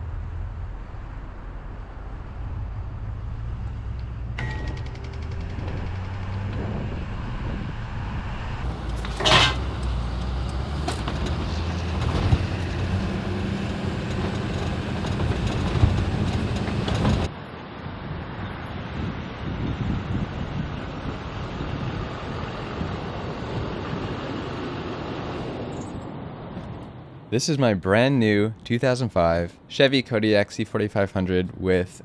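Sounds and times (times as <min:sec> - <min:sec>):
truck engine and road rumble: 0:00.0 - 0:32.0.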